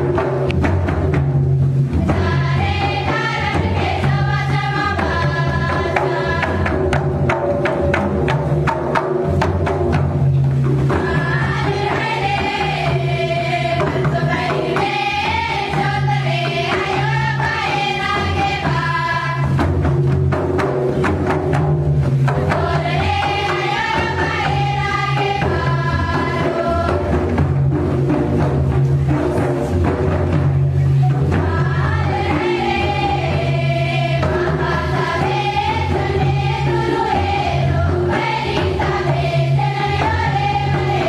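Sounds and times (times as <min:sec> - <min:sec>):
barrel drums beating: 0:00.0 - 0:41.0
group of voices singing: 0:02.0 - 0:08.0, 0:10.9 - 0:20.3, 0:22.3 - 0:27.8, 0:31.1 - 0:41.0.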